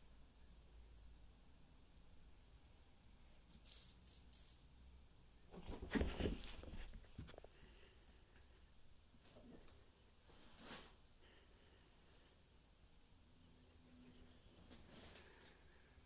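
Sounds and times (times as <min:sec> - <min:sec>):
cats scuffling with thumps: 0:05.5 - 0:07.5.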